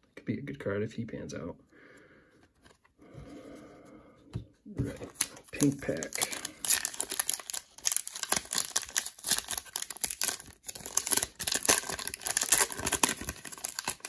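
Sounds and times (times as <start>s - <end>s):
plastic wrapper crinkling and tearing: 4.8s - 14.0s.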